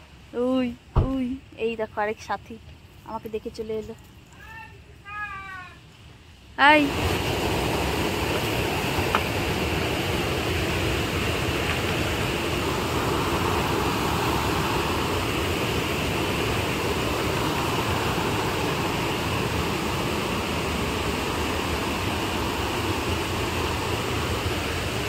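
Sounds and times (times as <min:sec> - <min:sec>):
water rushing over a weir: 0:06.6 - 0:25.0.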